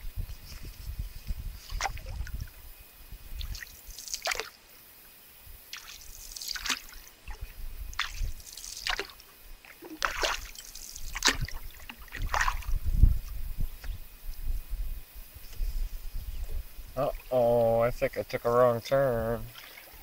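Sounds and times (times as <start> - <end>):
low microphone rumble: 0.0 - 3.6, 7.3 - 8.4, 11.5 - 18.5
paddle splashing water: 1.6 - 2.6, 3.4 - 4.6, 5.7 - 12.8, 19.4 - 20.0
water dripping: 3.4 - 4.5, 5.7 - 12.7.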